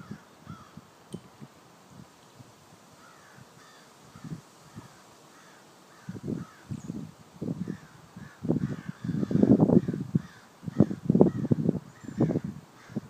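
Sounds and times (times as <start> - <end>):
crows cawing: 0.0 - 0.8, 3.0 - 6.7, 7.6 - 11.5, 12.2 - 13.0.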